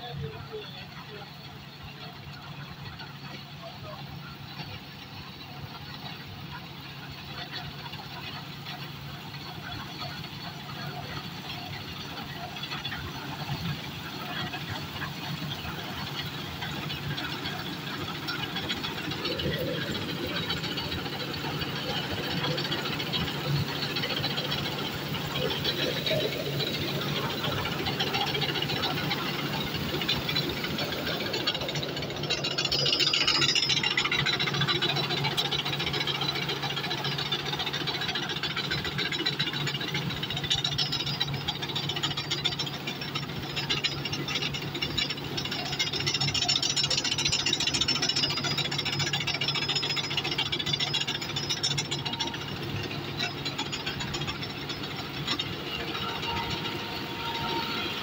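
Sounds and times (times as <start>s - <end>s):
clatter and rattle of machinery: 0.0s - 58.0s
combine harvester engine hum: 0.0s - 58.0s.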